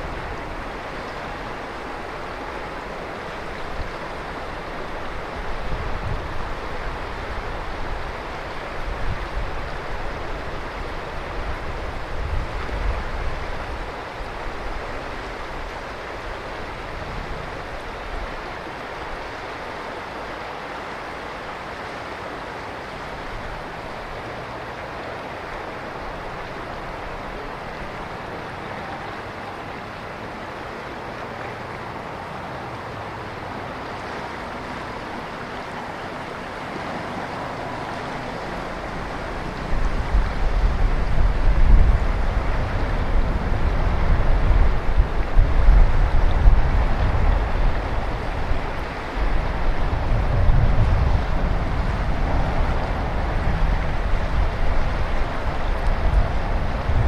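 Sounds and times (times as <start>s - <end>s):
river water rushing: 0.0s - 57.0s
low gusting rumbles: 35.0s - 57.0s.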